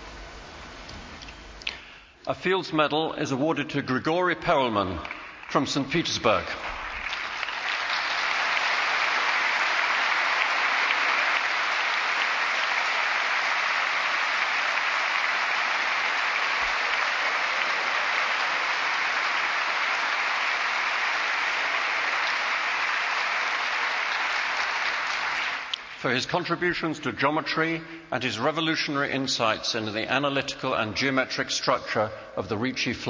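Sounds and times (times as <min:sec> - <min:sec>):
large audience applauding: 0:04.9 - 0:26.1.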